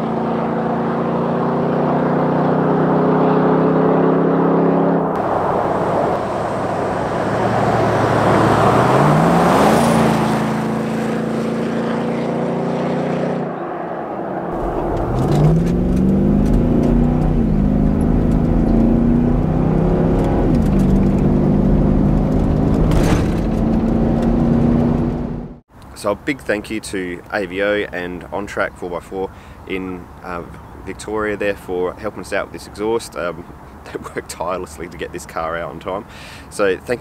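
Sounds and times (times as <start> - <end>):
car engine accelerating hard: 0.0 - 25.6.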